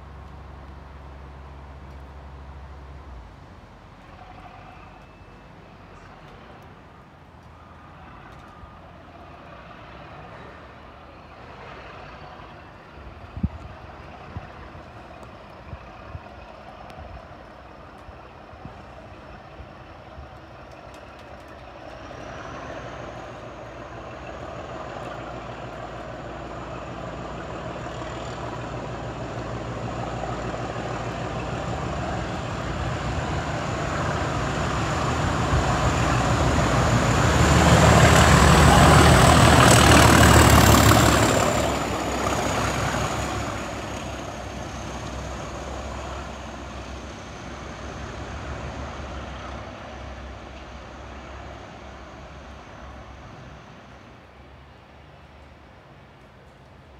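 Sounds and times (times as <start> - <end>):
diesel locomotive engine thrashing: 19.4 - 53.9.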